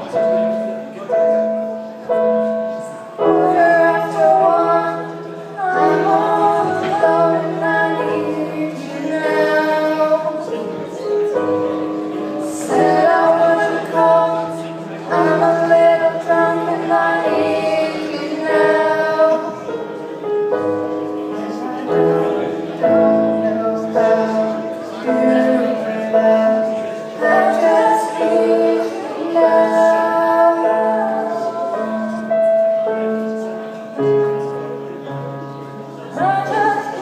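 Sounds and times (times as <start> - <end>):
electric piano chords: 0.0 - 37.0
woman singing: 3.2 - 10.9, 12.2 - 19.7, 23.4 - 32.4, 36.1 - 37.0.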